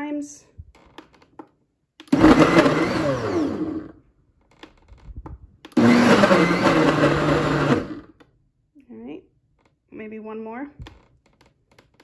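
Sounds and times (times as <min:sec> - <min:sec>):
blender motor and blades: 0:02.1 - 0:04.0, 0:05.7 - 0:08.1.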